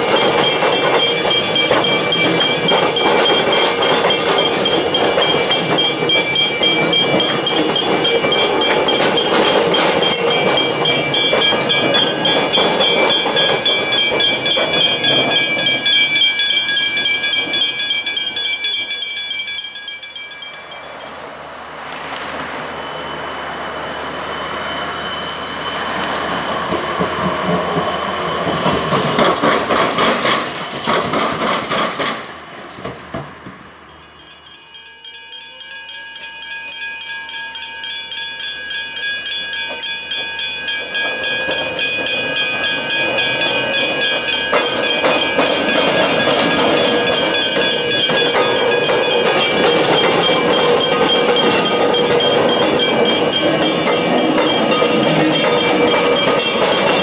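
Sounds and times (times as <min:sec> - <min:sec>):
level crossing bells ringing: 0:00.0 - 0:21.4, 0:33.9 - 0:57.0
train wheels clattering: 0:00.0 - 0:22.5, 0:25.8 - 0:34.9, 0:35.6 - 0:57.0.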